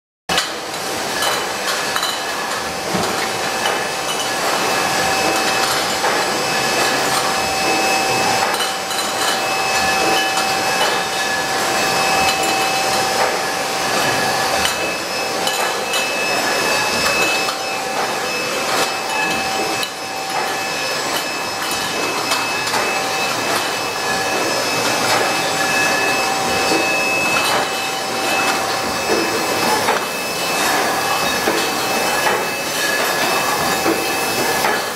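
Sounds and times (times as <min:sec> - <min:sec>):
filling machine hum and whine: 0:00.3 - 0:34.9
glass bottles clinking: 0:01.2 - 0:34.9.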